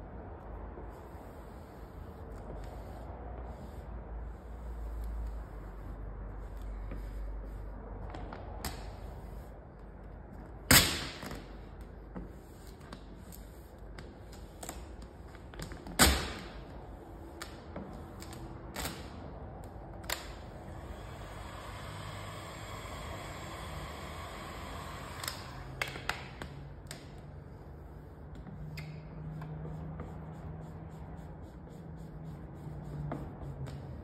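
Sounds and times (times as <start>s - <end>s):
heat gun whirring: 20.6s - 26.0s.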